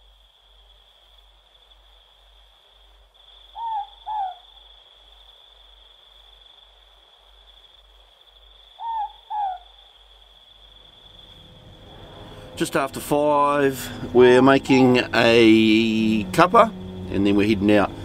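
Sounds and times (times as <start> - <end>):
insect chirring: 0.0 - 18.0
owl two-note call: 3.6 - 4.4, 8.8 - 9.7.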